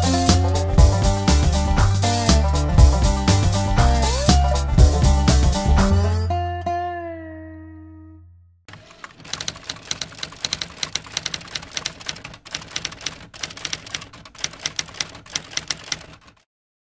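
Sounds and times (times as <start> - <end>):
typewriter key clicks: 8.7 - 16.4.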